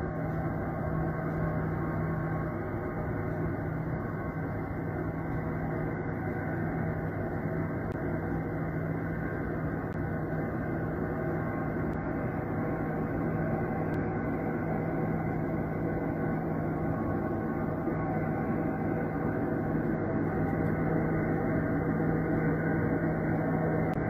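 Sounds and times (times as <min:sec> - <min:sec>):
low droning hum: 0:00.0 - 0:24.0.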